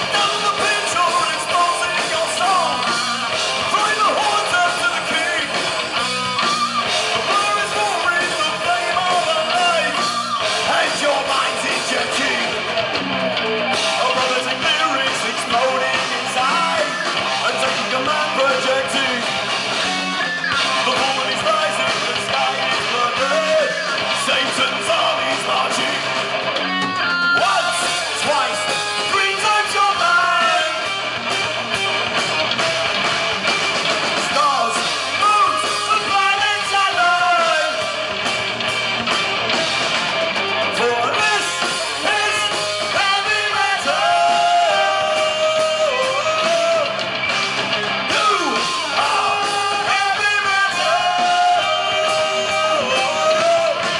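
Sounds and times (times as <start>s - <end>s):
man singing: 0.0s - 2.9s, 3.6s - 5.7s, 7.2s - 10.0s, 10.6s - 12.6s, 13.9s - 19.3s, 20.6s - 26.2s, 27.3s - 30.9s, 34.2s - 38.0s, 40.8s - 47.0s, 48.1s - 53.9s
bass guitar: 0.0s - 53.9s
drums: 0.0s - 53.9s
electric guitar: 0.0s - 53.9s.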